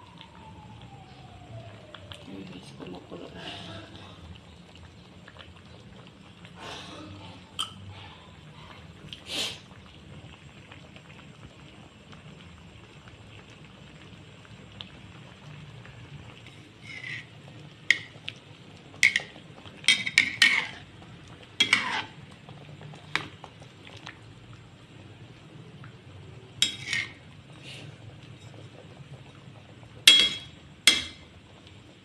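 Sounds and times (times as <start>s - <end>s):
spatula scraping metal pot: 16.5s - 17.3s, 19.9s - 20.9s, 21.6s - 22.2s, 26.6s - 27.2s.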